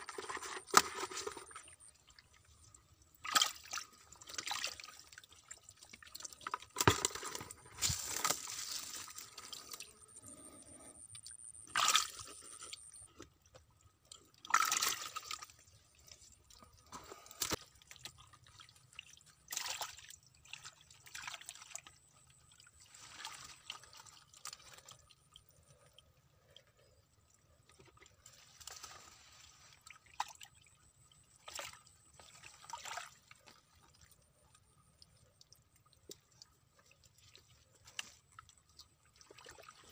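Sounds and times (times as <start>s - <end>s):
hands splashing in muddy water: 11.7s - 12.7s.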